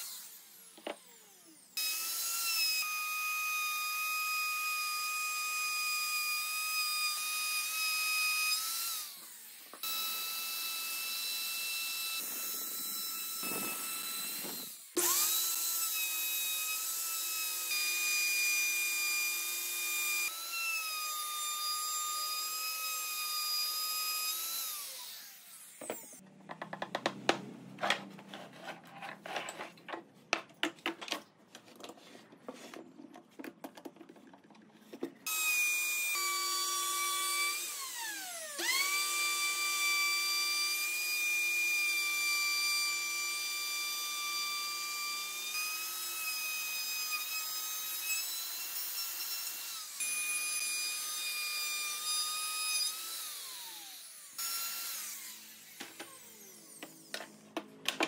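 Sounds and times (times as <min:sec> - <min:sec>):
high-pitched power tool motor: 0:00.0 - 0:26.2, 0:35.3 - 0:57.4
sharp knocks and clicks: 0:26.2 - 0:28.0.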